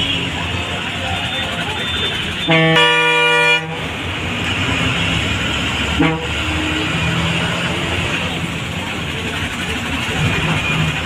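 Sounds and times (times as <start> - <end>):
bus horn blasts: 0.0 - 3.9, 5.8 - 7.0
bus engine and road noise: 0.0 - 11.0.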